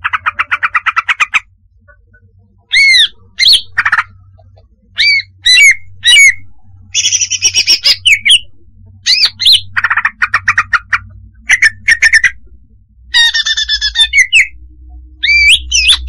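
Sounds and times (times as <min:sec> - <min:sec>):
faint low hum: 0:00.0 - 0:16.0
bird chirps and whistled notes: 0:02.6 - 0:04.1, 0:04.9 - 0:14.6, 0:15.2 - 0:16.0.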